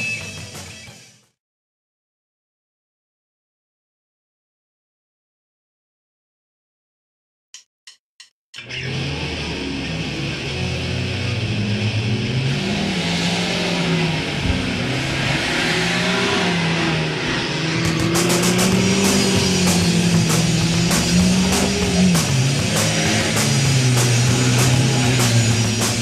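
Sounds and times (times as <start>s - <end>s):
rock music: 0.0s - 1.3s, 8.6s - 26.0s
car engines revving: 8.8s - 26.0s
steady drum beat: 17.8s - 26.0s.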